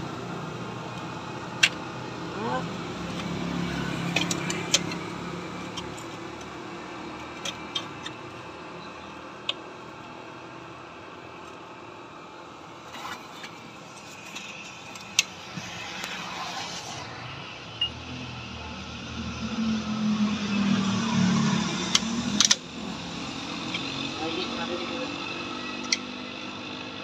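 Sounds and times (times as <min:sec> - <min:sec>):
metallic clicks of tools: 0:04.0 - 0:06.6, 0:21.9 - 0:22.6.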